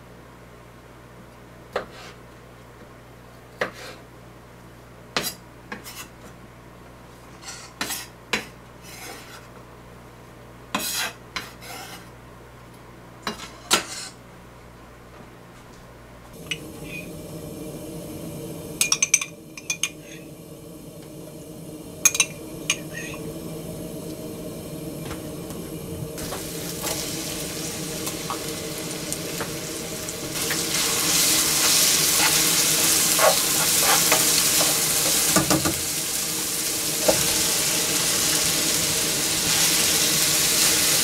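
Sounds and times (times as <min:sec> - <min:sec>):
low steady hum: 0:14.4 - 0:41.0.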